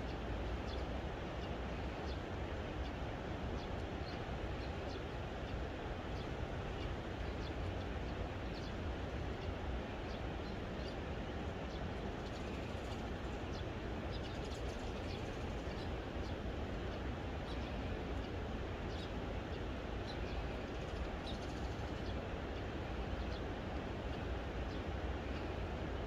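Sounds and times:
small birds chirping: 0:06.1 - 0:25.9.

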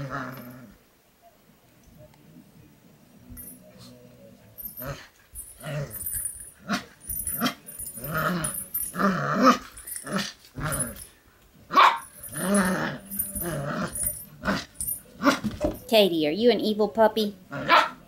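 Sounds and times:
puppy growling: 0:00.0 - 0:00.8, 0:04.7 - 0:11.1, 0:11.8 - 0:15.6
puppy yapping: 0:11.7 - 0:12.1, 0:17.6 - 0:18.0.

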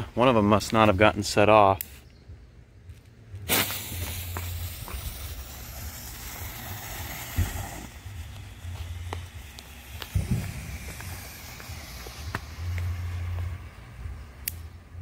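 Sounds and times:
smoke bomb hissing: 0:03.4 - 0:15.0.

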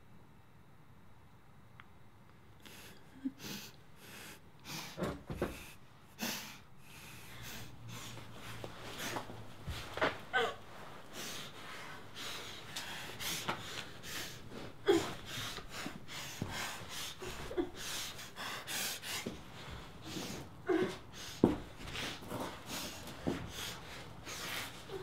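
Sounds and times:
woman breathing hard through nose: 0:02.6 - 0:25.0
woman moaning through gag: 0:10.3 - 0:10.6.

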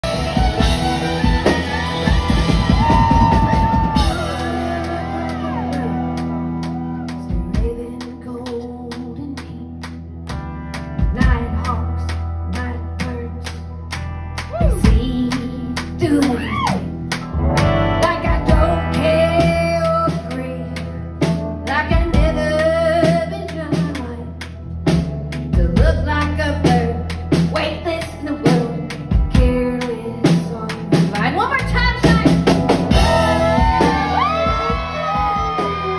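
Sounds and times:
drums: 0:00.0 - 0:35.9
electric guitar: 0:00.0 - 0:35.9
woman singing: 0:03.2 - 0:09.9, 0:11.0 - 0:13.6, 0:14.5 - 0:16.9, 0:18.0 - 0:24.5, 0:25.5 - 0:35.8.

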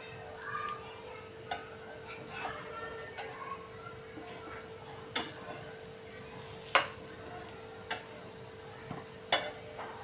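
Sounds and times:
faint sizzle: 0:00.0 - 0:10.0.

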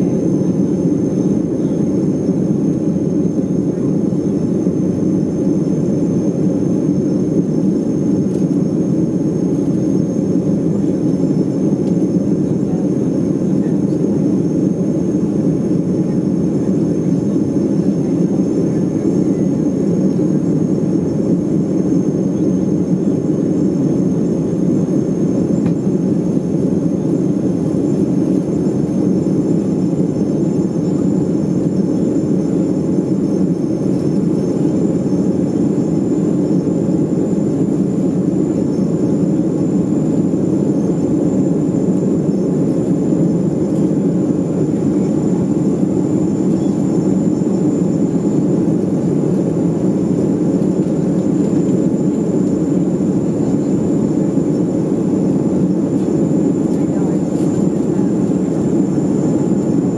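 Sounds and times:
high steady whine: 0:00.0 - 0:59.9
jet cabin rumble: 0:00.0 - 0:59.9.

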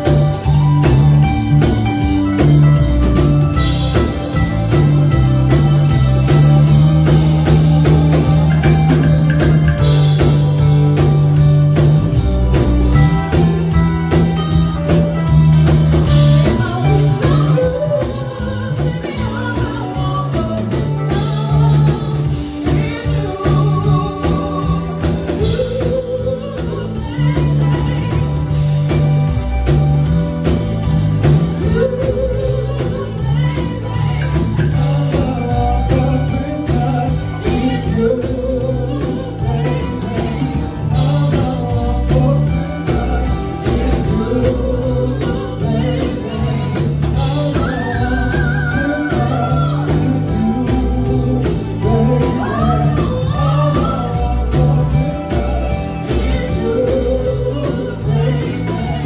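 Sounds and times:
live band playing: 0:00.0 - 0:59.0
people singing: 0:15.2 - 0:59.0.

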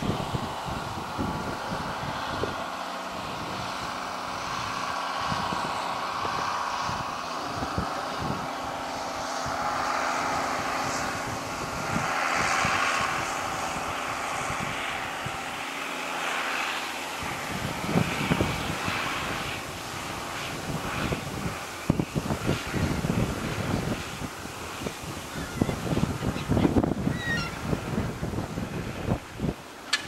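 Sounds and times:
wind buffeting microphone: 0:00.0 - 0:30.0
tractor engine running: 0:14.3 - 0:30.0.

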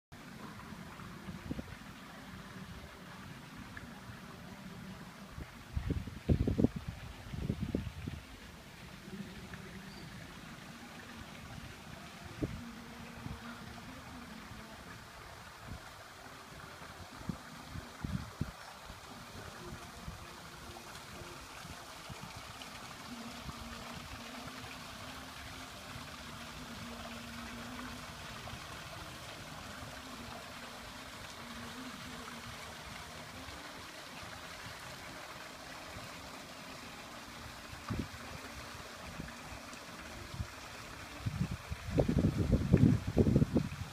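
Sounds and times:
soft rushing hiss: 0:00.2 - 0:43.9
low rumbling on microphone: 0:00.8 - 0:10.4, 0:40.3 - 0:43.9.

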